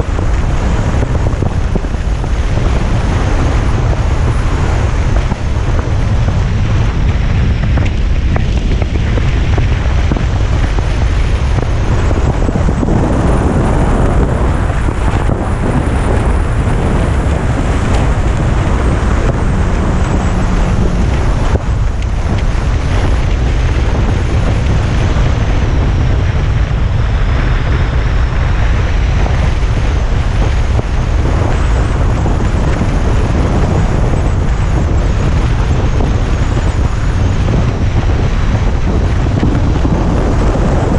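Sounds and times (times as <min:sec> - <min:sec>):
motorcycle engine and road noise: 0:00.0 - 0:40.9
wind rumble on microphone: 0:00.0 - 0:40.9.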